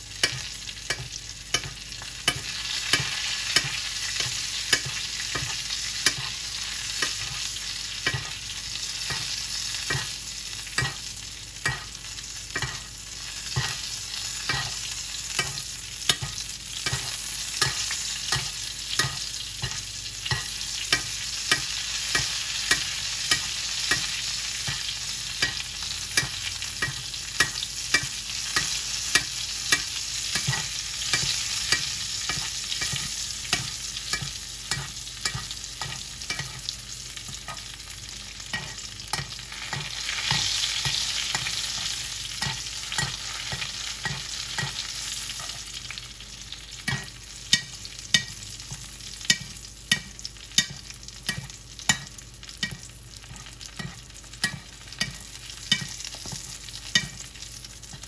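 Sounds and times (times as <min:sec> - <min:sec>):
onions sizzling in a pan: 0:00.0 - 0:58.0
spoon knocking against pan: 0:08.0 - 0:08.4, 0:11.6 - 0:11.9, 0:15.4 - 0:37.7, 0:38.5 - 0:44.8, 0:46.9 - 0:57.2.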